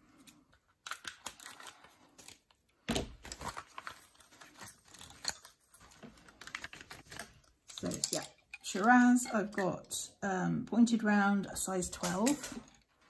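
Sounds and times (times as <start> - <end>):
plastic packaging crinkling: 0.7 - 9.0.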